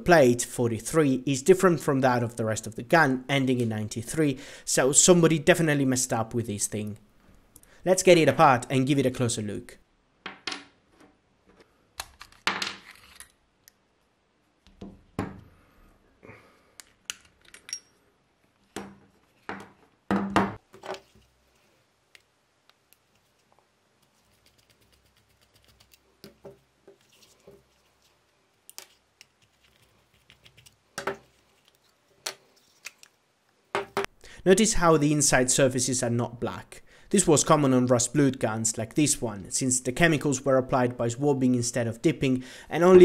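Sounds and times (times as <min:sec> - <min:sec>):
metal parts clicking and clinking: 0:16.8 - 0:18.0.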